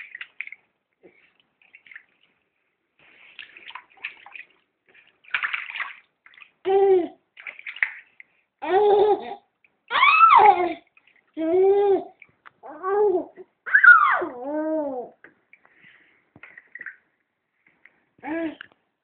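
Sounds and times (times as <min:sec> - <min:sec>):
bath water splashing: 0:00.0 - 0:08.5, 0:10.0 - 0:11.4
young child vocalizing: 0:11.4 - 0:15.2.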